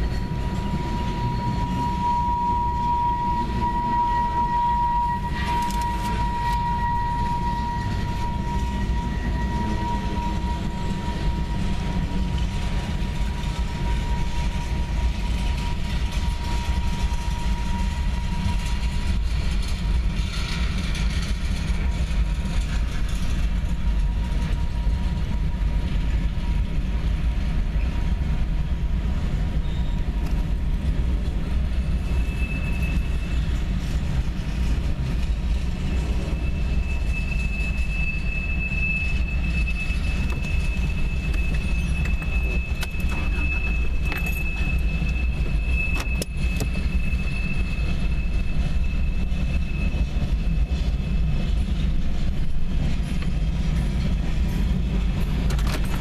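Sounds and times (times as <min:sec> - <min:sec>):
higher-pitched squeal: 0:00.0 - 0:19.2, 0:31.8 - 0:34.0, 0:35.6 - 0:51.6
high squeal: 0:00.0 - 0:25.7, 0:29.5 - 0:30.2, 0:31.8 - 0:53.4.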